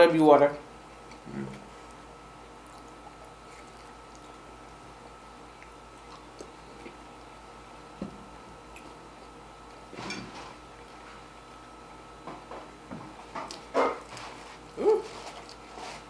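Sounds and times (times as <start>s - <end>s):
chewing and biting: 0.9s - 7.3s, 13.4s - 16.0s.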